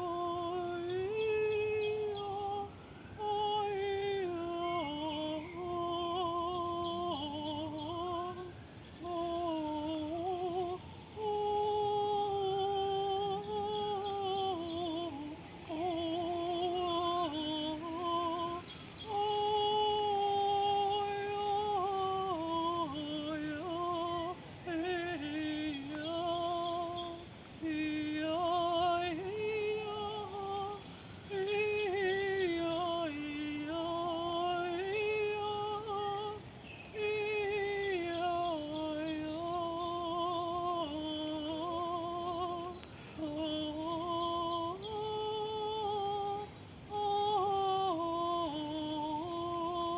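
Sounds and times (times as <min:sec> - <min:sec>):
woman singing without words: 0:00.0 - 0:49.9.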